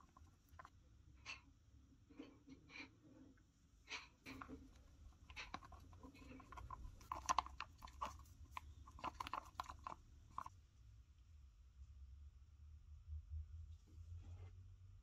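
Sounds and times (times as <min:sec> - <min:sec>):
stir stick scraping plastic cup: 0:04.2 - 0:10.6.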